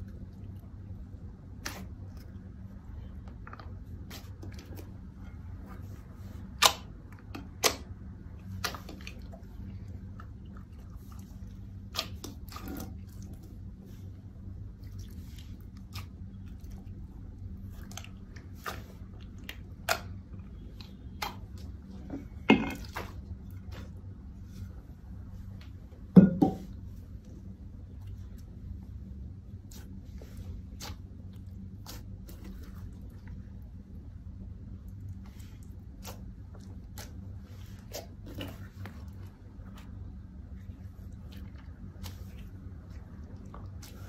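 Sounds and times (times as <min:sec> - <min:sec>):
low steady hum: 0:00.0 - 0:44.0
slime squishing: 0:00.0 - 0:44.0
knock of glass bowl: 0:26.2 - 0:26.6.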